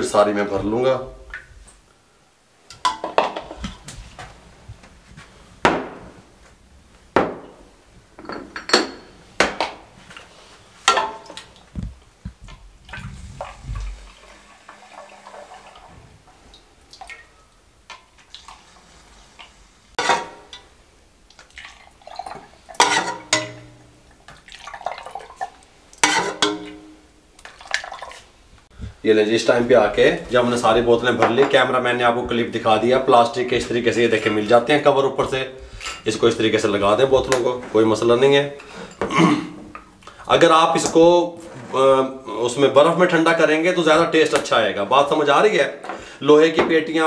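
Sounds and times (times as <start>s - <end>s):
glass and metal clinking on tray: 8.2s - 9.1s, 22.8s - 23.9s, 26.0s - 27.0s
liquid pouring and dripping: 10.9s - 19.6s, 20.4s - 28.3s.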